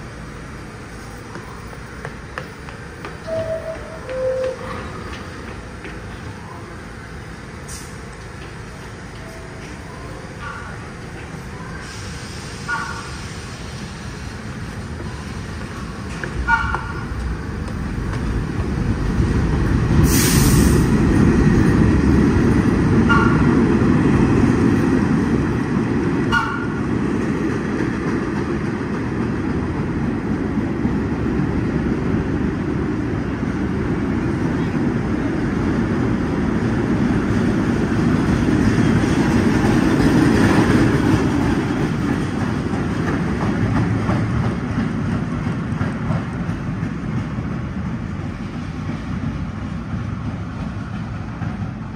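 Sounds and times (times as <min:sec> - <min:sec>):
train wheels rumbling on rail: 0:00.0 - 0:51.9
train horn toots: 0:03.2 - 0:04.9, 0:23.1 - 0:23.5
air hiss: 0:11.7 - 0:14.4, 0:20.0 - 0:20.9.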